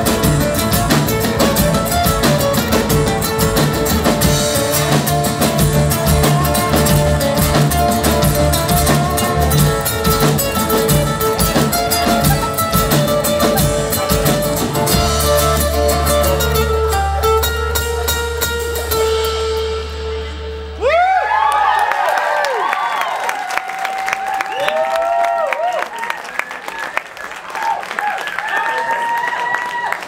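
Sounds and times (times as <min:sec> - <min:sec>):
live band playing: 0:00.0 - 0:22.1.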